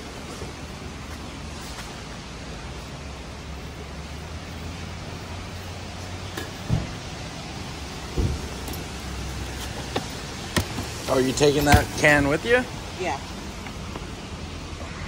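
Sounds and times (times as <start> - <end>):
traffic hum: 0.0 - 15.0.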